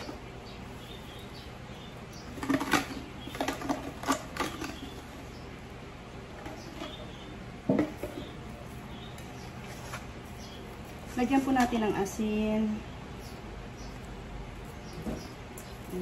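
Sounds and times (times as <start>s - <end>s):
kitchen items rustling and clattering: 2.2s - 5.3s, 6.4s - 12.2s.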